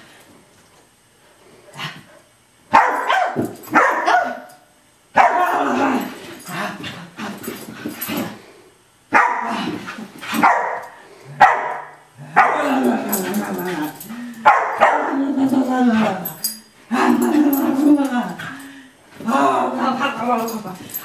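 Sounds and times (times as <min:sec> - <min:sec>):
dog barking: 0:02.7 - 0:04.5, 0:05.2 - 0:05.5, 0:09.1 - 0:09.5, 0:10.4 - 0:10.8, 0:11.4 - 0:12.6, 0:14.4 - 0:15.1.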